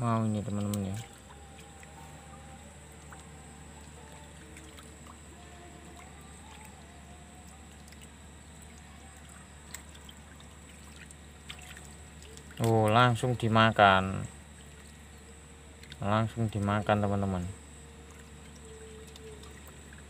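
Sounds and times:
low hum and hiss: 0.0s - 20.0s
water trickling: 0.0s - 20.0s.

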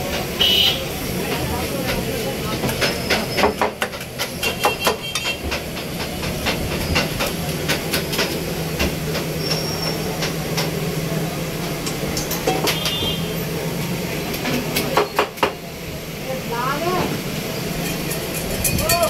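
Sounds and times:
metal spoon clinking on steel bowl: 17.8s - 19.0s.

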